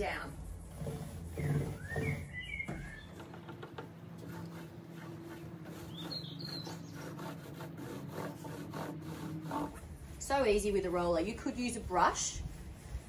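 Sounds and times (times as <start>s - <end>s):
roller rubbing on wood: 0.0s - 13.0s
steady low hum: 0.0s - 13.0s
bird chirping: 1.3s - 3.7s, 5.7s - 7.2s.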